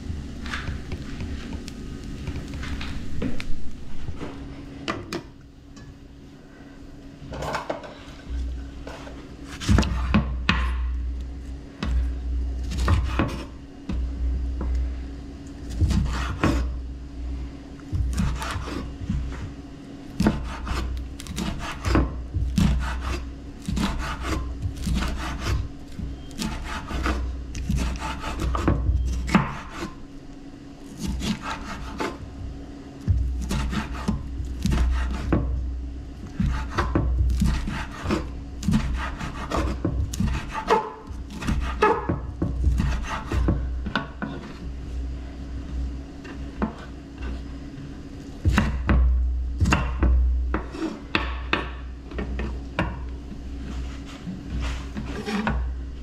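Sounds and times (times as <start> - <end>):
knife cutting on wooden board: 12.7 - 13.6, 15.7 - 16.8, 18.0 - 19.5, 20.2 - 30.0, 30.9 - 32.2, 33.4 - 35.5, 36.3 - 44.6, 53.6 - 55.7.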